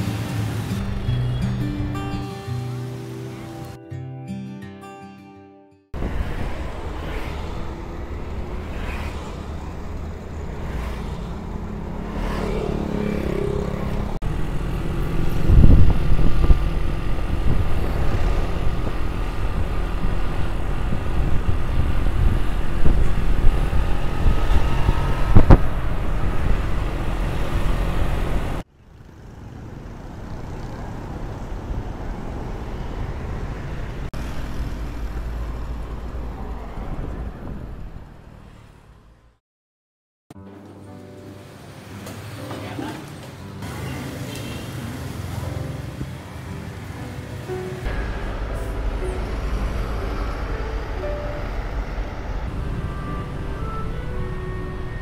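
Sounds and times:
motorbike engines and road rumble: 0.0s - 3.8s, 6.0s - 39.4s, 40.4s - 55.0s
steady outdoor hum: 13.0s - 30.6s, 47.8s - 55.0s.

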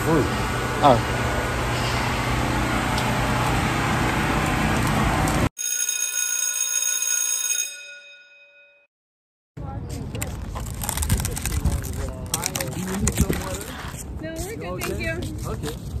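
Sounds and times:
street traffic noise: 0.0s - 5.5s, 9.6s - 16.0s
bell-like ringing tones: 5.6s - 8.9s.

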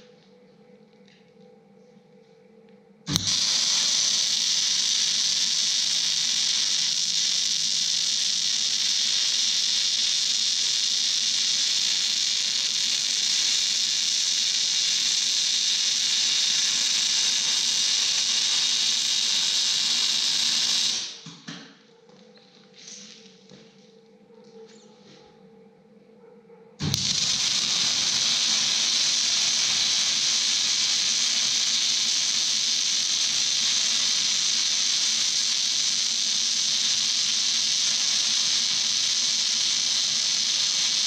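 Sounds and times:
welding arc hiss: 3.1s - 21.5s, 26.8s - 41.0s.

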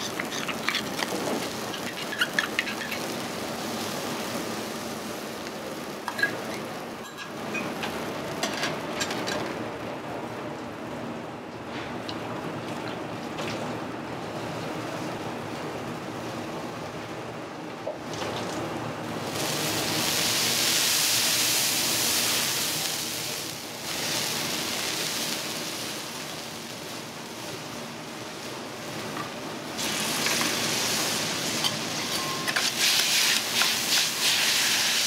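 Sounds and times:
noodles hissing on hot plate: 0.0s - 5.4s, 19.2s - 29.0s, 29.7s - 35.0s
sizzling on hot griddle: 0.0s - 9.4s, 19.1s - 35.0s.

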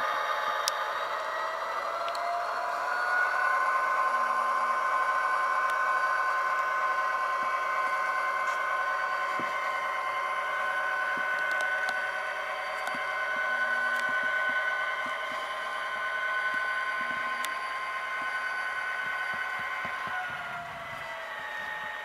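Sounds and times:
model locomotive engine sound: 0.0s - 22.0s
faint clicks on model track: 0.6s - 1.1s, 2.0s - 2.3s, 10.6s - 12.1s, 12.7s - 15.6s, 16.4s - 20.3s.

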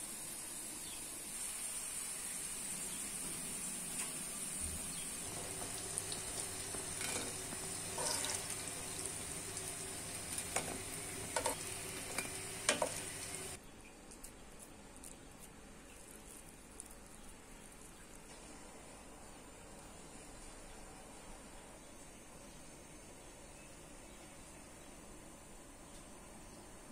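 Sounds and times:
food sizzling in a pan: 0.0s - 13.6s
faint background noise: 0.0s - 26.9s.

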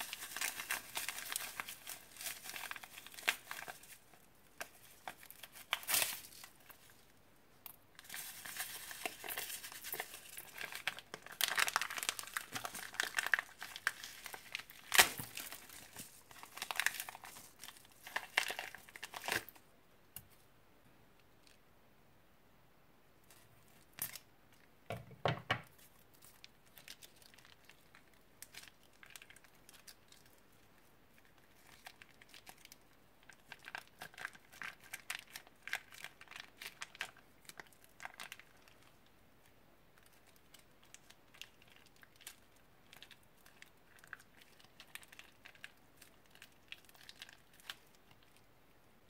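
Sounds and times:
plastic bag crinkling: 0.0s - 7.1s, 8.0s - 19.6s, 25.7s - 39.0s.

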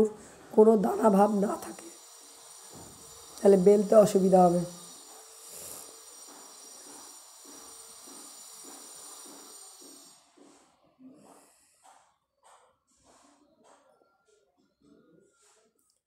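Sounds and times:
steady hiss: 1.2s - 10.6s.

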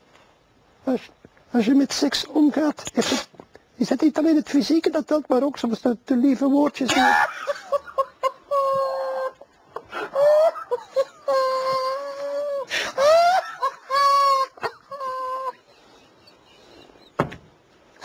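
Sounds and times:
man's stifled laughter: 6.9s - 15.8s.

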